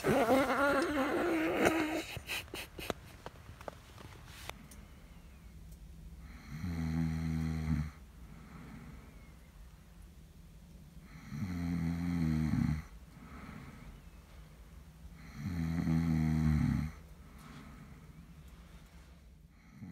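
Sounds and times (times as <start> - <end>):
person snoring: 0.0 - 2.5, 15.2 - 17.0
breathy exhale: 8.2 - 9.2, 13.2 - 14.1.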